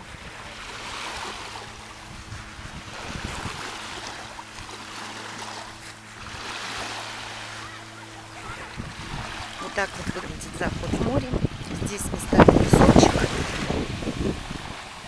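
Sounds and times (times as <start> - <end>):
small waves lapping on pebble beach: 0.0 - 15.0.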